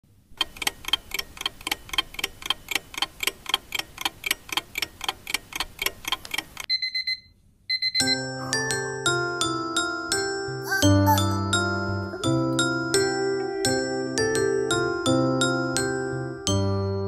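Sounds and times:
fast clock ticking: 0.4s - 6.7s.

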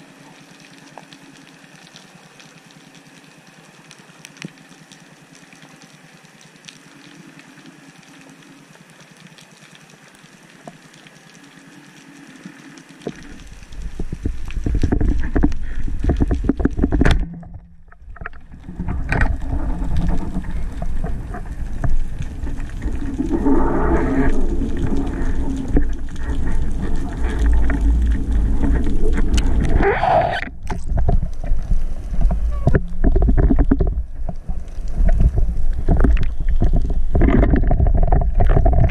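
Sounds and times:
faint steady hiss: 0.0s - 17.0s
low rumbling underwater noise: 13.0s - 38.9s.

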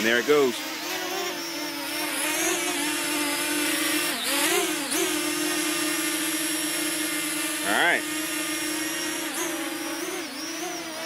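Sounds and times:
drone propellers buzzing: 0.0s - 11.0s.

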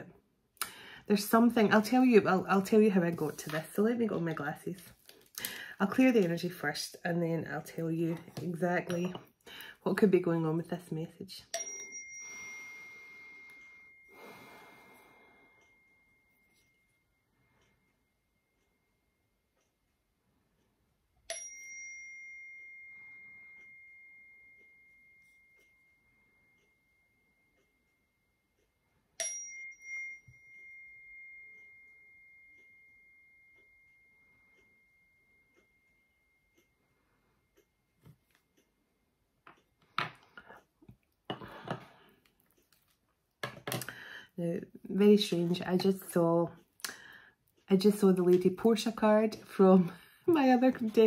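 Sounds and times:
small metal chime ringing: 11.5s - 14.6s, 21.3s - 27.8s, 29.2s - 36.6s.

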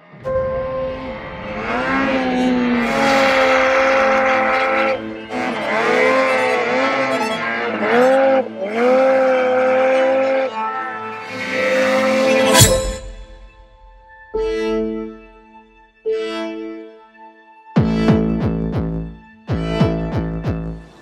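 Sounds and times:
snowmobile engine revving: 1.6s - 12.6s.

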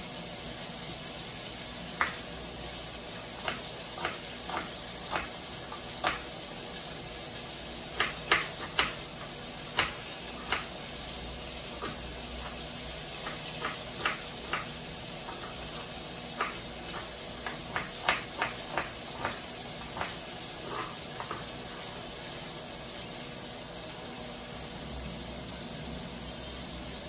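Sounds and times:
food sizzling in a wok: 0.0s - 27.0s
knife chopping on plastic board: 2.0s - 2.3s, 3.3s - 6.4s, 7.8s - 21.9s.

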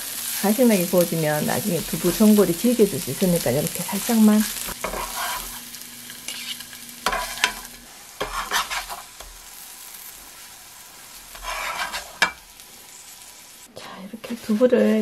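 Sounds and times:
tofu sizzling in oil: 0.0s - 13.7s
spatula scraping pan: 4.4s - 9.4s, 10.2s - 12.6s.

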